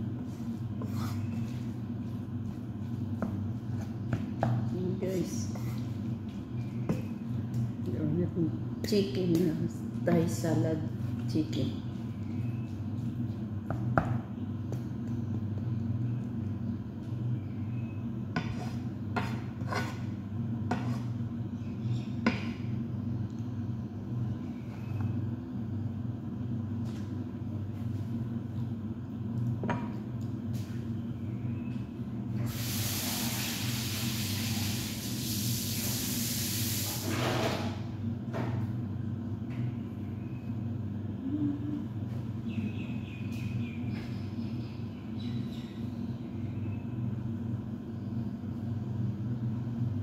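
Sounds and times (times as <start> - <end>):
steady low hum: 0.0 - 50.0
spatula scraping a wok: 18.4 - 21.2.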